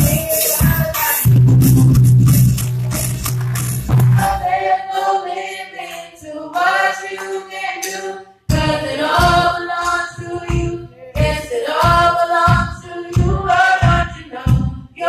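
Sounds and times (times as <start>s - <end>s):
voices singing together: 0.0s - 1.3s, 4.1s - 15.0s
band with steady drum beat: 0.0s - 4.4s, 10.4s - 14.8s.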